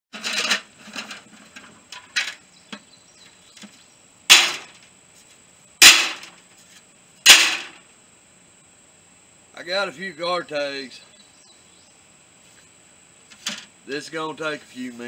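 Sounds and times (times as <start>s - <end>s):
metal plates clattering: 0.1s - 2.4s.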